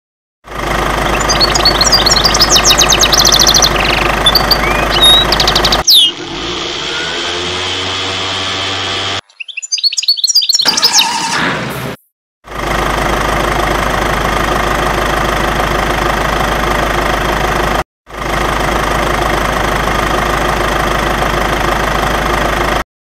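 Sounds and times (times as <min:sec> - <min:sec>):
engine running: 0:00.4 - 0:09.2, 0:12.4 - 0:22.9
truck engine running: 0:00.4 - 0:09.2, 0:12.4 - 0:22.9
birds chirping: 0:00.9 - 0:06.3, 0:09.2 - 0:11.3.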